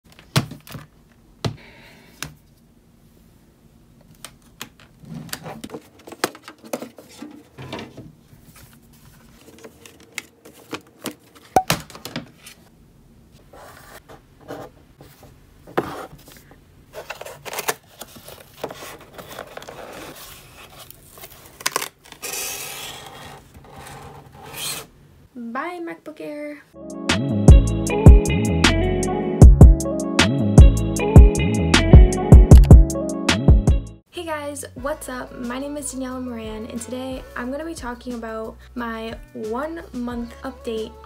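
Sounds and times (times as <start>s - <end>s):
paper and cardboard rustling: 5.0s - 12.7s, 13.4s - 24.9s.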